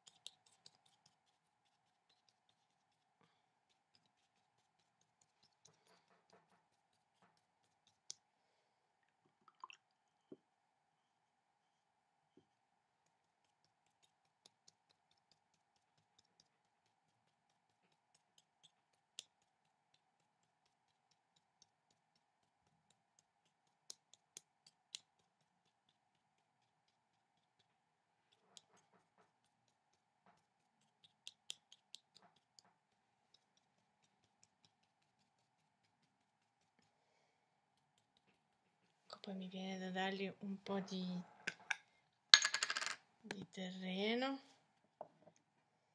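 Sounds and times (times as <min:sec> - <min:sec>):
paintbrush dabbing on paper: 0:00.0 - 0:08.4, 0:11.5 - 0:40.8.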